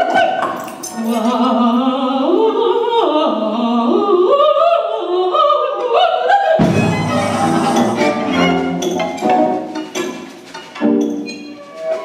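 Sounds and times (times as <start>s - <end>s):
woman singing operatic line: 1.0s - 8.6s
orchestral music with low notes: 6.6s - 9.9s.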